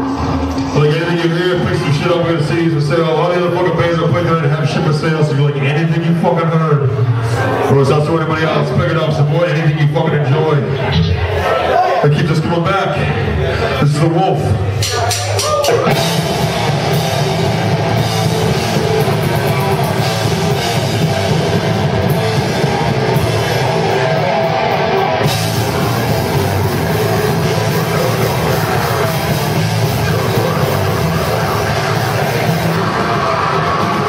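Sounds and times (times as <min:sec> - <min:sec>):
distorted electric guitar: 0:00.0 - 0:09.4, 0:10.2 - 0:11.4, 0:14.4 - 0:34.0
drum kit: 0:14.6 - 0:34.0.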